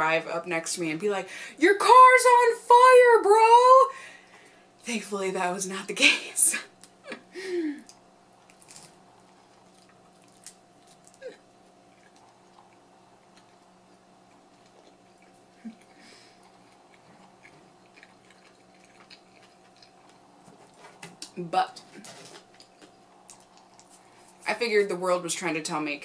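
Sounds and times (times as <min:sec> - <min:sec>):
person chewing quietly: 0:07.8 - 0:24.5.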